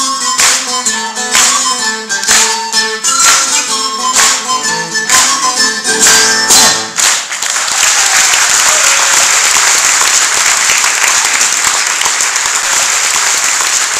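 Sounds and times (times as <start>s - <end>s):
live band playing: 0.0s - 7.3s
audience applause: 6.0s - 13.9s.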